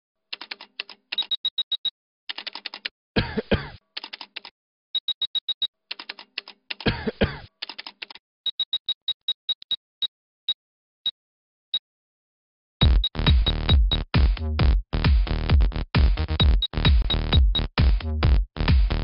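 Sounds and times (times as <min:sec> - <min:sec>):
typewriter key clicks: 0:00.4 - 0:01.3, 0:02.3 - 0:02.9, 0:04.0 - 0:04.5, 0:05.9 - 0:06.9, 0:07.6 - 0:08.2.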